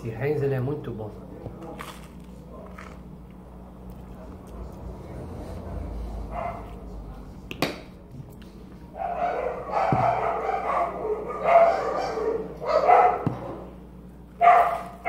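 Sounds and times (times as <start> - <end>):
dog barking: 6.3 - 6.8, 8.9 - 13.8, 14.4 - 15.0.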